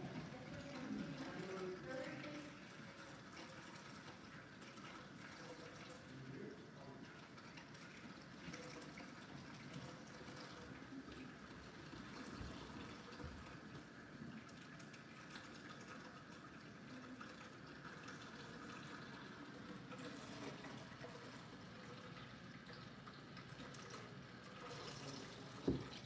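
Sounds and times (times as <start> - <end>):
tap water filling a pot: 0.0 - 26.0.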